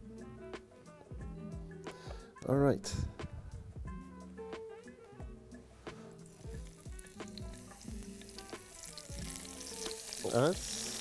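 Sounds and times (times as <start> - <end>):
background music with steady beat: 0.0 - 11.0
food sizzling in a pan: 6.0 - 11.0.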